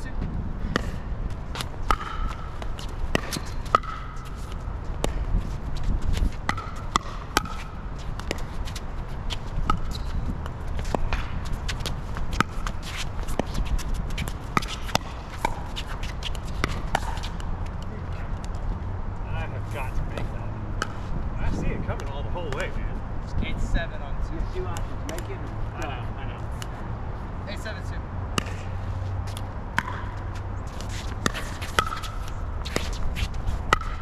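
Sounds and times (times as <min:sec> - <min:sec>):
wind on microphone: 0:00.0 - 0:03.7, 0:04.6 - 0:14.6, 0:19.9 - 0:25.1
shuffling footsteps on court: 0:00.2 - 0:18.8, 0:30.1 - 0:33.7
paddles hitting ball: 0:00.7 - 0:18.6, 0:29.3 - 0:34.0.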